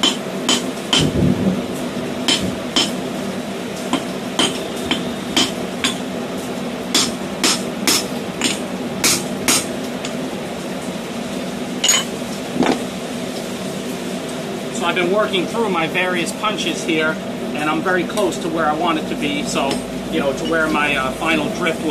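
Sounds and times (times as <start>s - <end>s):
steady hum: 0.0s - 21.9s
hammer striking steel punch: 2.3s - 3.0s, 4.0s - 6.0s, 7.0s - 9.7s.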